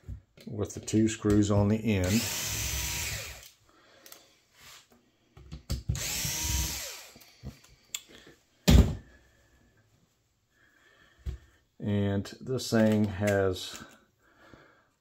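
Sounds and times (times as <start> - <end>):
power screwdriver whirring: 2.0 - 3.5, 6.0 - 7.3.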